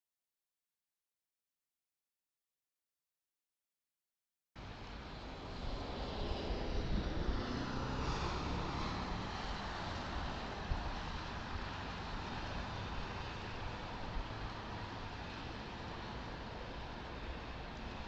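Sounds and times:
car road and engine noise: 4.6 - 18.0
truck passing whoosh: 5.2 - 16.5.

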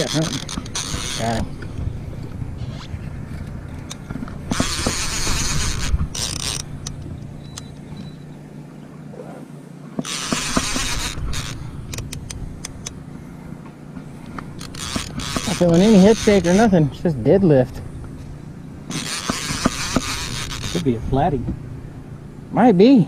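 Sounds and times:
fishing reel cranking with clicks: 0.0 - 1.7, 3.9 - 7.7, 10.0 - 13.0, 14.6 - 16.8, 18.9 - 21.0.

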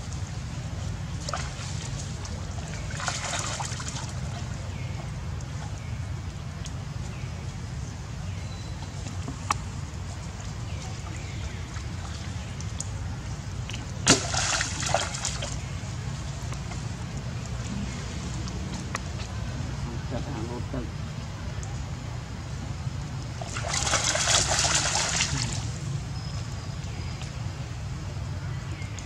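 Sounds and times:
monkeys splashing in water: 0.2 - 7.1, 8.8 - 19.9, 23.1 - 27.5.

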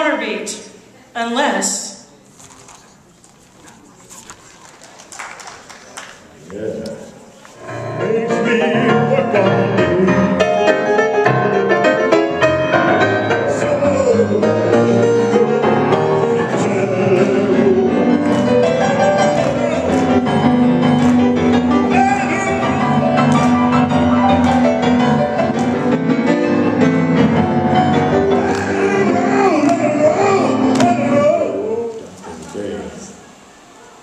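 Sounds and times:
man singing: 7.6 - 24.3, 27.9 - 32.2
acoustic piano blues: 7.6 - 32.3.

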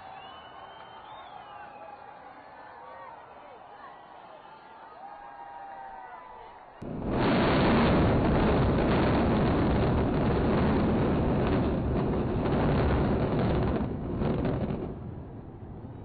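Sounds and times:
demolition blasts and building collapse: 6.8 - 16.0.

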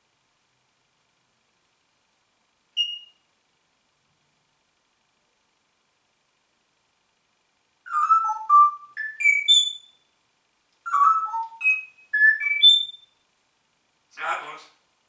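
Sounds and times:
parrot whistling a tune: 2.8 - 3.2, 7.9 - 10.0, 10.8 - 13.2.

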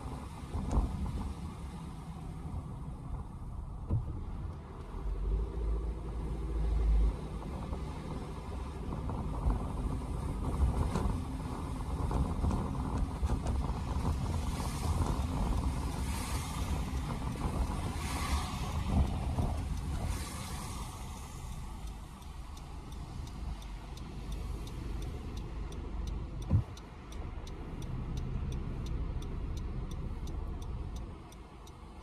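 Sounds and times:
car road noise rumble: 0.0 - 32.0
tyre spray hiss of passing car: 16.0 - 21.8.

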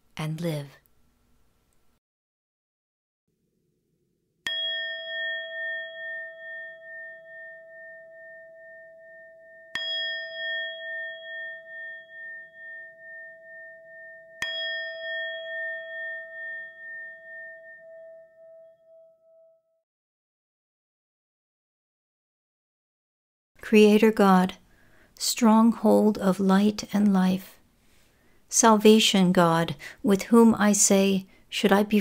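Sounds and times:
singing bowl ringing: 4.4 - 19.8.

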